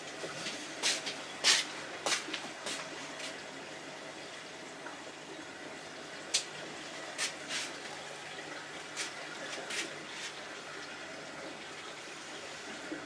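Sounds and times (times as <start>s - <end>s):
water running in aquarium: 0.0s - 13.0s.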